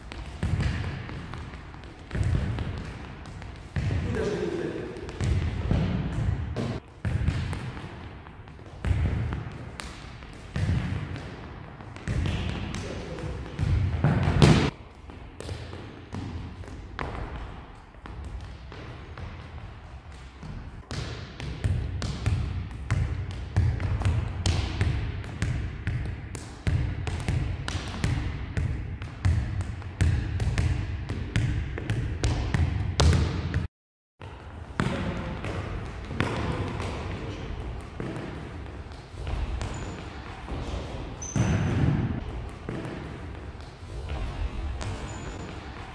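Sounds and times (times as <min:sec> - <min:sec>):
football kicked in echoing hall: 0:00.0 - 0:45.9
ball bouncing on wooden floor: 0:00.1 - 0:04.3, 0:05.0 - 0:19.5, 0:20.2 - 0:45.9.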